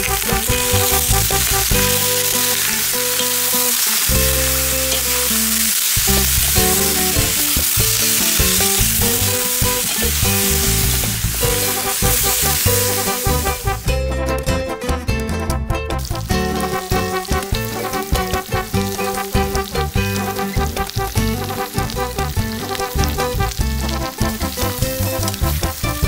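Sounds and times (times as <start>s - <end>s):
pork fat sizzling in a pan: 0.0s - 14.0s, 16.0s - 26.0s
background music: 0.0s - 26.0s
metal spatula stirring: 8.0s - 13.2s.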